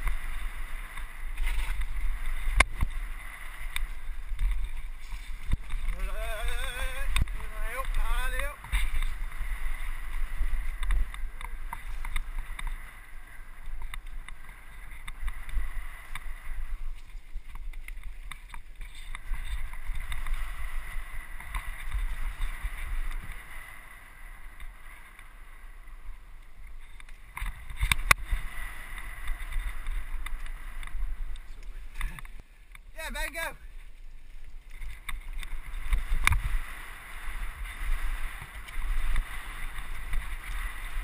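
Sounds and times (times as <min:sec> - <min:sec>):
bike rattling over rocks: 0:00.0 - 0:33.0, 0:33.7 - 0:41.0
wind buffeting microphone: 0:00.0 - 0:41.0.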